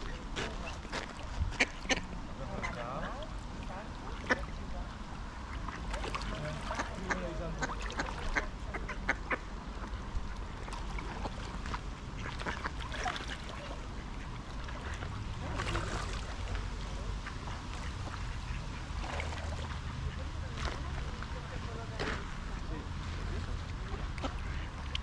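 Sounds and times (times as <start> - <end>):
ducks quacking: 0.0 - 3.2, 4.1 - 4.6, 5.4 - 9.9, 10.7 - 20.6, 23.8 - 25.0
low steady rumble: 0.0 - 25.0.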